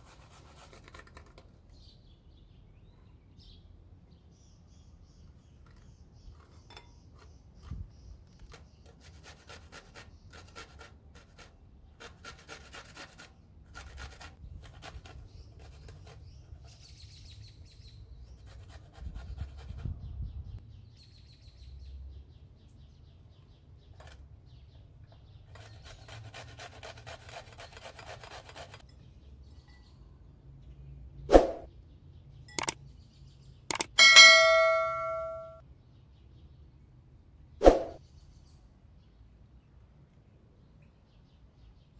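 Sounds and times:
carrot rasping on grater: 0:08.4 - 0:16.1, 0:25.5 - 0:28.8.

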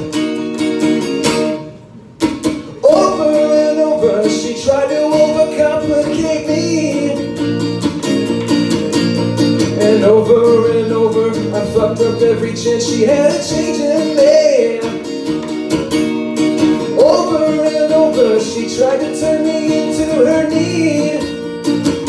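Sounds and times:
acoustic guitar strumming: 0:00.0 - 0:22.0
man singing: 0:02.8 - 0:07.5, 0:09.6 - 0:15.2, 0:16.7 - 0:21.5.

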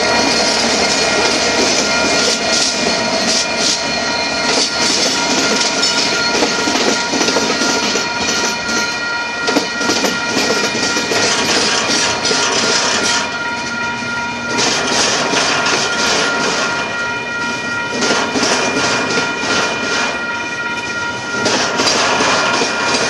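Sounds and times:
freight cars rumbling and rattling: 0:00.0 - 0:17.0
high-pitched whine: 0:00.0 - 0:20.1
diesel locomotives passing: 0:00.0 - 0:23.0.

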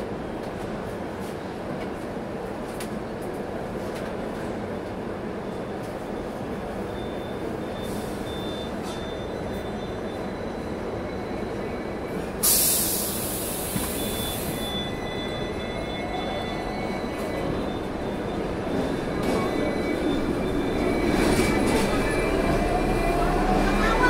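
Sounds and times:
tram rumbling on rails: 0:00.0 - 0:24.0
wheels squealing on rail: 0:05.3 - 0:24.0.

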